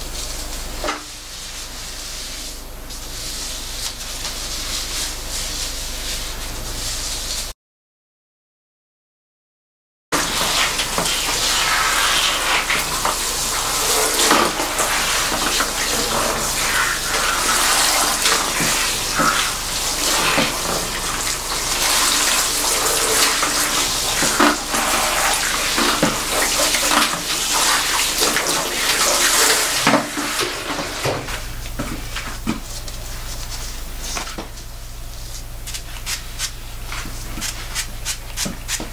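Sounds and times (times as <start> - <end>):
shower head spraying water: 10.2 - 33.8.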